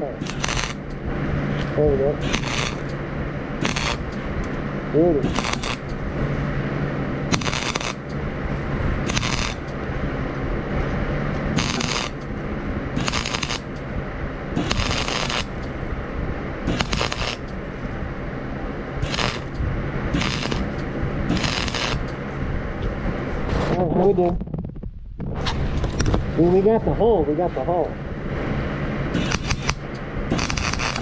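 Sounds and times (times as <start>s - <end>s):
welding arc crackling: 0.0s - 9.9s, 11.3s - 18.1s, 19.0s - 23.1s, 29.1s - 31.0s
low steady hum: 0.0s - 31.0s.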